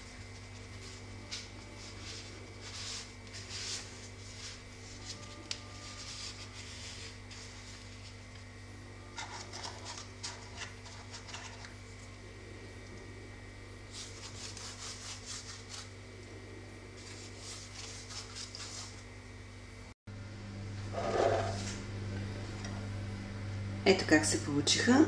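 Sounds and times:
pastry rustling: 0:00.0 - 0:13.1, 0:13.8 - 0:19.2
steady low hum: 0:00.0 - 0:25.0
pastry brush scratching on pastry: 0:00.1 - 0:08.4, 0:09.2 - 0:11.8, 0:13.8 - 0:16.0, 0:16.9 - 0:19.1.

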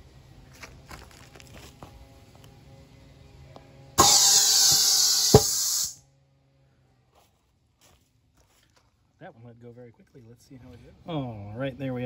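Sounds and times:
balloon bursting pop: 0:04.0 - 0:05.9
compressed air hissing: 0:04.0 - 0:06.0.

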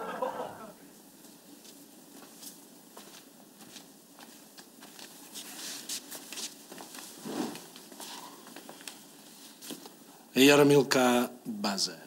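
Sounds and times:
faint rustles: 0:01.2 - 0:10.0.

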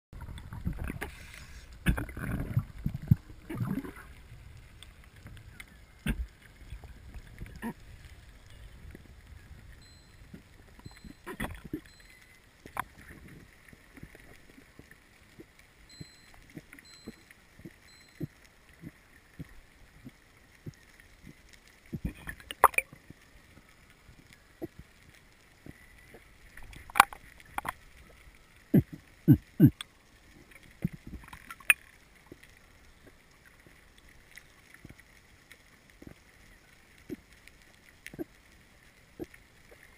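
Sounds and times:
water rumbling: 0:00.1 - 0:39.9
sharp underwater clicks: 0:00.2 - 0:04.0, 0:04.7 - 0:39.9
underwater hiss: 0:01.0 - 0:02.6.

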